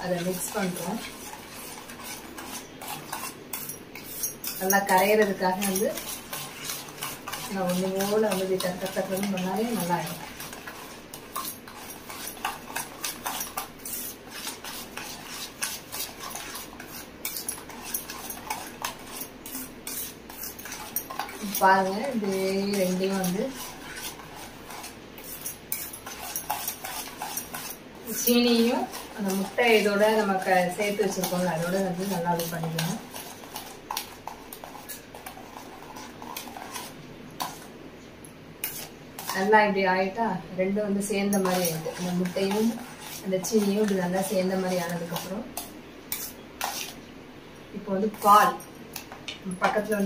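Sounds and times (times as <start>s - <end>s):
spoon clinking in metal bowl: 2.4s - 9.9s, 41.2s - 42.7s.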